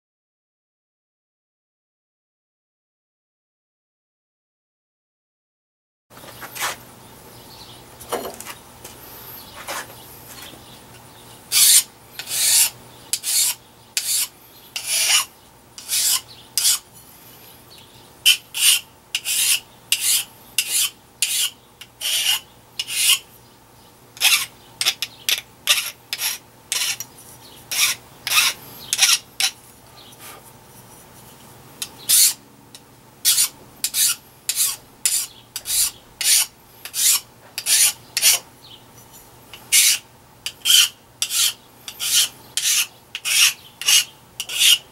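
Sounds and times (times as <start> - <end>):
hand file rasping on metal: 11.5 - 16.9, 18.3 - 23.2, 24.2 - 27.1, 27.7 - 29.6, 33.2 - 38.4, 39.5 - 44.9.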